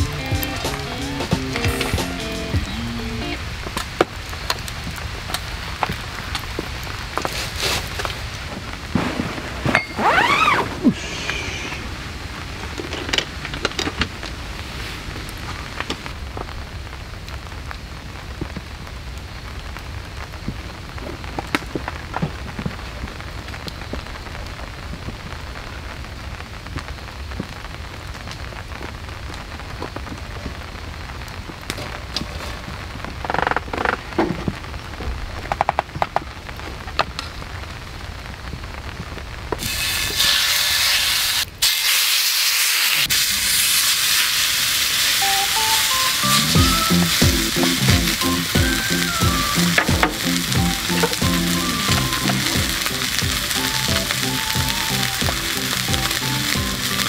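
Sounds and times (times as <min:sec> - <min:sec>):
steady rain: 0:00.0 - 0:57.0
steak sizzling in a skillet: 0:39.6 - 0:57.0.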